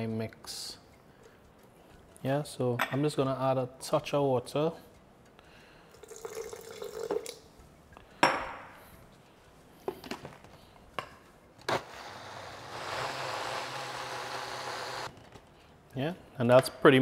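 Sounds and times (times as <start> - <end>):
water pouring into blender jar: 6.0 - 7.4
blender running: 11.7 - 15.1.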